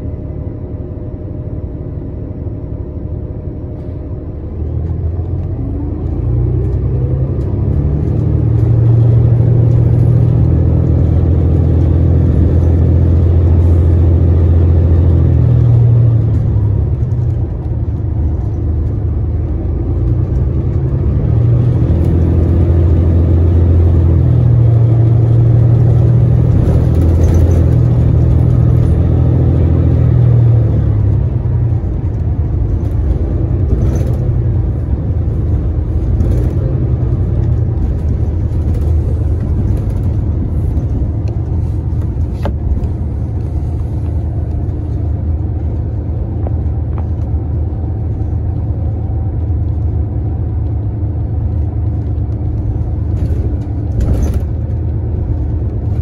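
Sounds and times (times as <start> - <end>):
bus drivetrain hum: 0.0 - 56.0
road rumble: 0.0 - 56.0.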